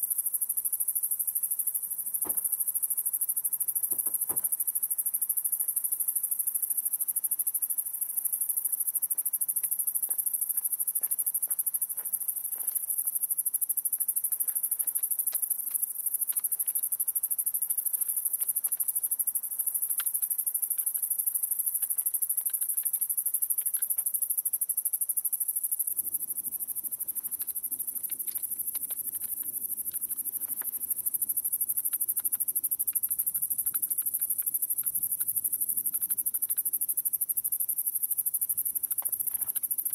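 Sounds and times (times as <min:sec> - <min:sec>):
crickets chirping: 0:00.0 - 0:39.9
faint clicks: 0:19.8 - 0:24.1, 0:27.2 - 0:36.8.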